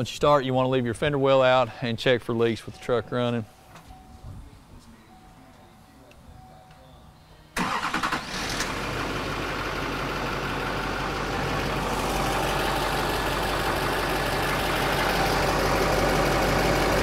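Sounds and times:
diesel engine starting and idling: 7.5s - 17.0s.

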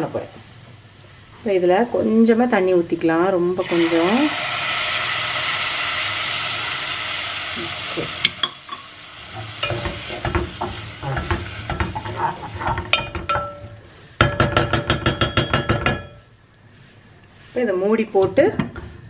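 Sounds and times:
water sizzling in hot pot: 0.0s - 18.5s
spatula scraping a pot: 9.3s - 14.0s.

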